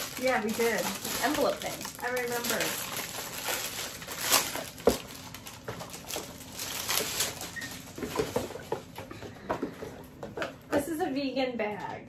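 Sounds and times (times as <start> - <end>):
packaging rustling and crinkling: 0.0 - 9.0.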